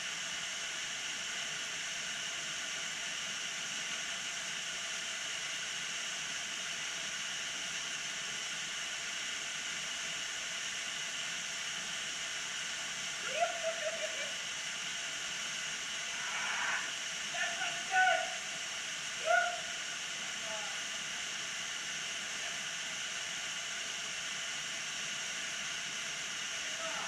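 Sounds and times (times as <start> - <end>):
short rising call: 16.1 - 17.0.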